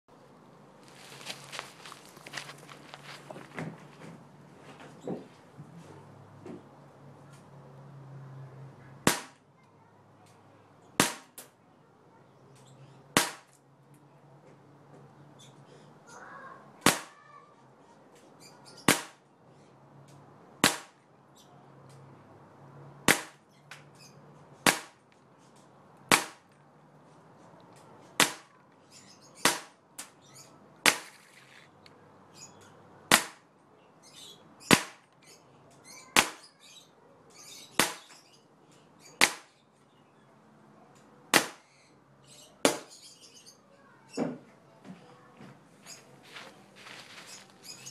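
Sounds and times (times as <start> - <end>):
bb gun firing: 9.0 - 9.4, 13.2 - 13.5.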